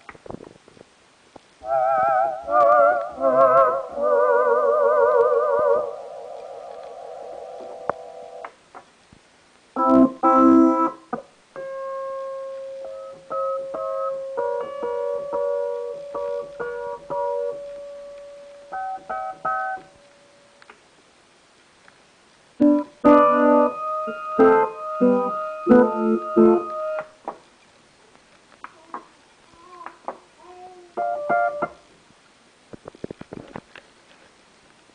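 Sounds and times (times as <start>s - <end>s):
synthesizer chords: 9.8s - 11.0s, 22.6s - 27.1s.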